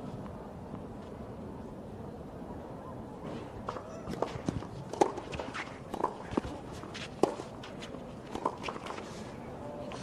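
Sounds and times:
tennis ball being struck: 0:04.9 - 0:07.7, 0:08.3 - 0:08.9
shoes scuffing on clay: 0:05.2 - 0:09.3.

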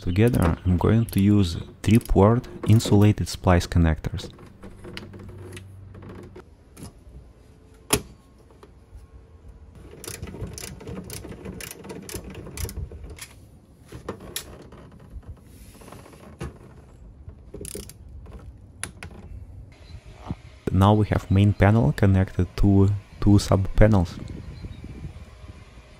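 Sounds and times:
handling scrapes: 0:15.4 - 0:16.8.

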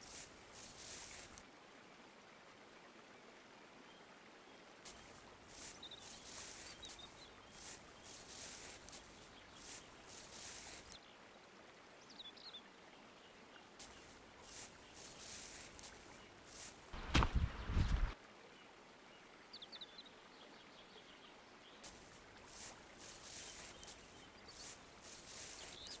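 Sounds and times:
footsteps in dry leaves: 0:00.0 - 0:01.4, 0:04.9 - 0:11.0, 0:13.8 - 0:18.2, 0:21.8 - 0:26.0.

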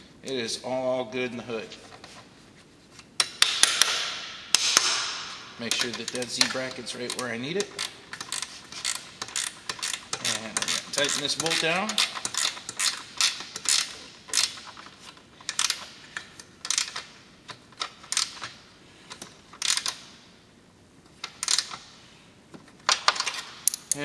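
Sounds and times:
ratcheting wrench clicks: 0:05.7 - 0:18.5, 0:19.1 - 0:20.0, 0:21.2 - 0:21.8.

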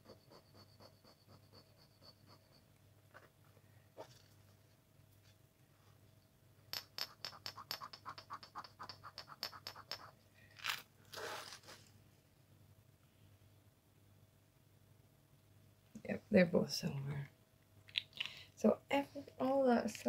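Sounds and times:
jewellery scraping on stone: 0:06.8 - 0:11.7.

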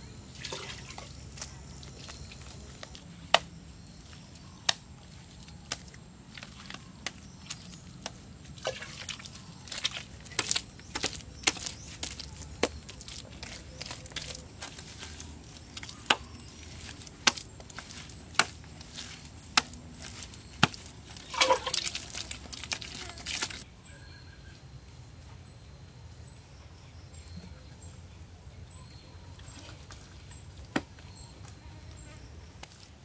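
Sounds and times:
mortar scraping and smearing: 0:04.0 - 0:23.6.

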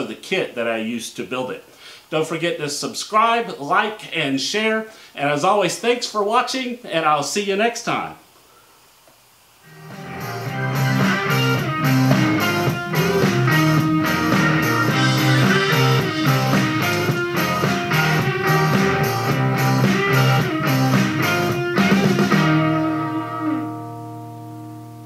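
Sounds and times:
guitar-led rock music: 0:09.6 - 0:25.0.

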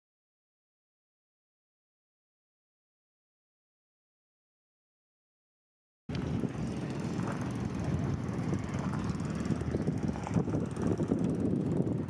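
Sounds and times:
wind buffeting microphone: 0:06.1 - 0:12.0.

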